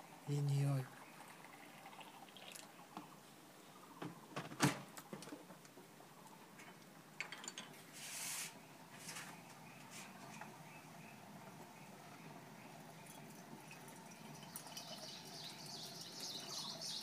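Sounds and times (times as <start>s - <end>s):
brief hiss: 7.9s - 9.3s.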